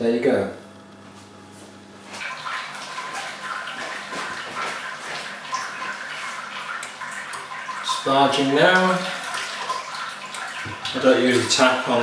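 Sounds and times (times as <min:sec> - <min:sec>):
low steady hum: 0:00.0 - 0:03.6
water splashing and trickling: 0:02.2 - 0:12.0.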